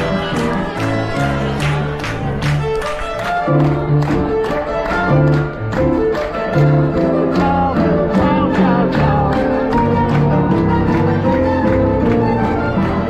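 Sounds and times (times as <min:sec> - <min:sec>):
violin playing: 0:00.0 - 0:13.0
piano playing steady beat: 0:03.1 - 0:13.0.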